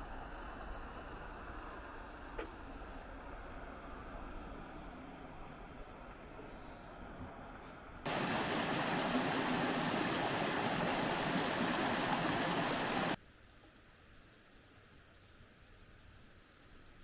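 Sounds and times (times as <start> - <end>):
stream water rushing: 8.0 - 13.2.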